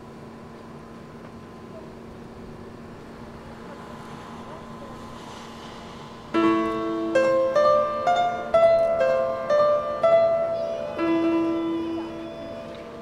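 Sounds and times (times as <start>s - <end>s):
low held note: 2.7s - 13.0s.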